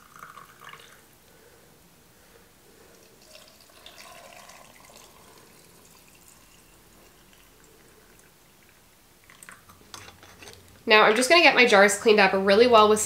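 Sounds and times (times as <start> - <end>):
liquid trickling into jar: 0.0 - 1.1, 2.9 - 10.7.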